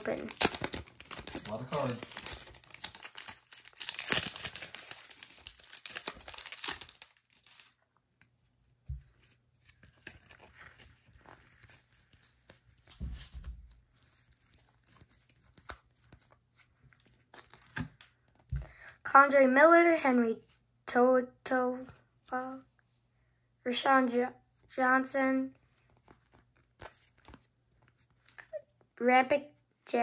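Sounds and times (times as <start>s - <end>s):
foil wrapper crinkling and tearing: 0.0s - 7.8s
cards rustling and sliding: 9.0s - 18.6s, 25.7s - 28.3s.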